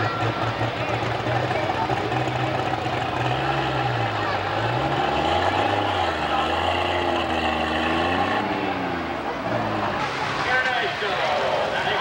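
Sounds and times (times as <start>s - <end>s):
tractor engine running loud: 0.0s - 12.0s.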